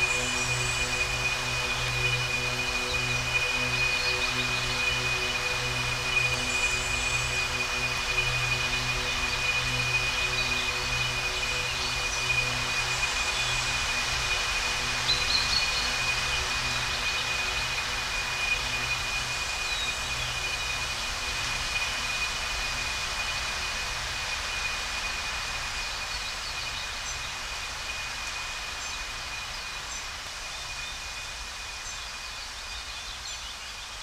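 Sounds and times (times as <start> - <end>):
steady hiss: 0.0 - 34.0.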